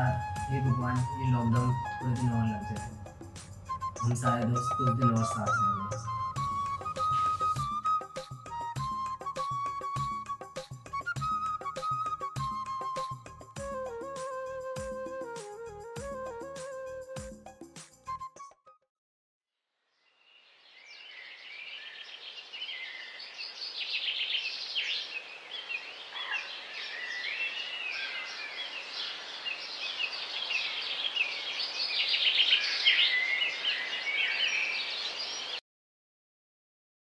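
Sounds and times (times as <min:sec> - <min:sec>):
birds chirping and calling: 0:03.9 - 0:07.5, 0:23.8 - 0:35.6.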